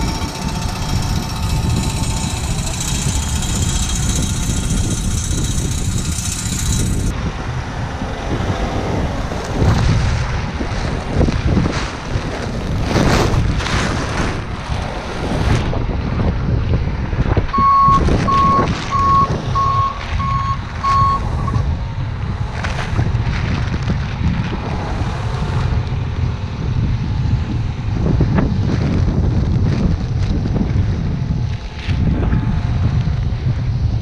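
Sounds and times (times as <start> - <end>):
wind buffeting microphone: 0.0 - 34.0
reversing alarm beeping: 17.6 - 21.6.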